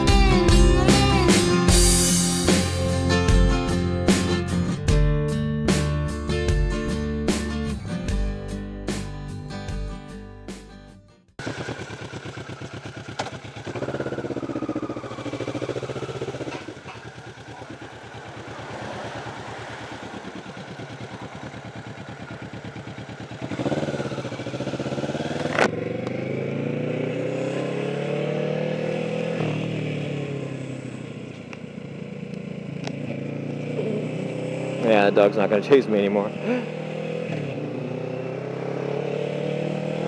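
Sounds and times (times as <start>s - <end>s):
motorcycle engine running: 11.4s - 40.0s.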